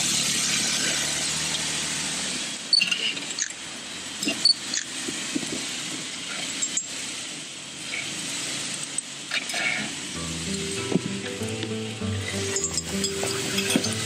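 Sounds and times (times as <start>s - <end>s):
off-road vehicle engine running: 0.0s - 14.0s.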